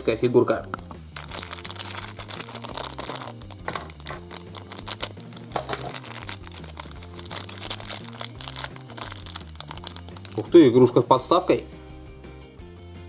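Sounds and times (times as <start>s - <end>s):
plastic wrapper crinkling: 0.5s - 10.6s.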